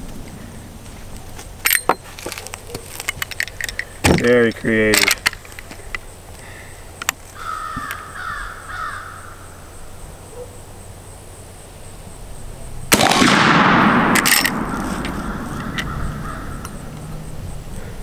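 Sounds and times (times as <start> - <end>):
crow cawing: 7.3 - 9.7, 14.7 - 17.1
rifle shot echoing: 12.9 - 16.7.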